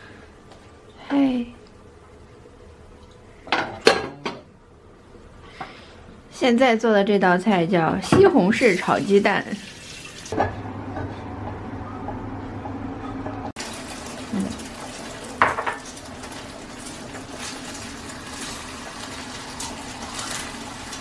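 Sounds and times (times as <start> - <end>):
egg sizzling in oil: 13.6 - 21.0.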